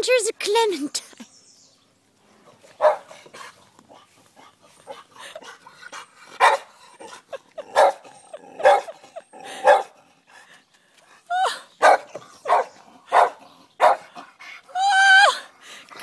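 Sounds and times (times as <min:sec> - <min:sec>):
dog barking: 0:02.8 - 0:03.2, 0:06.4 - 0:06.7, 0:07.7 - 0:09.0, 0:09.6 - 0:09.9, 0:11.8 - 0:14.1.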